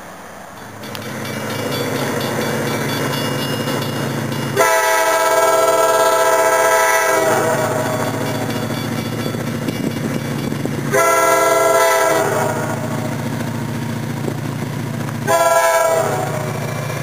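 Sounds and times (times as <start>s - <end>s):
diesel locomotive engine: 0.0s - 17.0s
crossing bell ringing: 0.5s - 14.2s
locomotive air horn: 4.6s - 8.0s, 10.9s - 12.9s, 15.2s - 16.6s.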